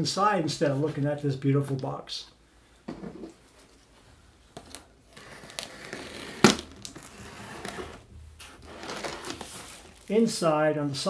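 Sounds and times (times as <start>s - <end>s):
knife slitting packing tape: 5.1s - 8.0s.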